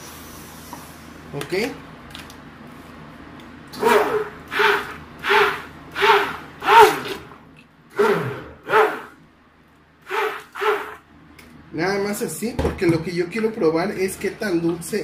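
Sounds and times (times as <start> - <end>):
immersion blender whirring: 3.8 - 9.1, 10.0 - 11.0.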